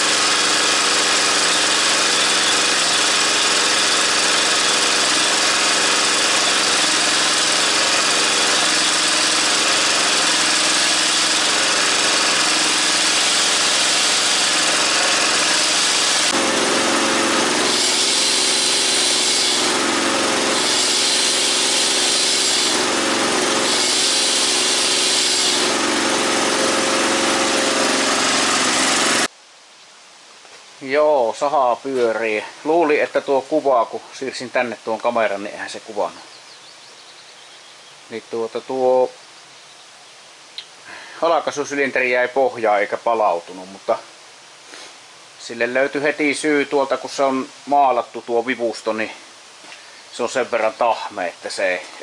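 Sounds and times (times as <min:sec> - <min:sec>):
chainsaw bar hissing: 0:00.0 - 0:29.3, 0:44.6 - 0:45.3, 0:48.8 - 0:52.0
small petrol engine running: 0:00.0 - 0:29.3.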